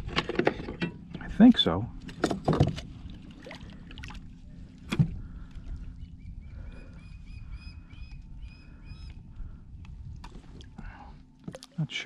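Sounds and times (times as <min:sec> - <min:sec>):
low steady rumble: 0:00.0 - 0:11.5.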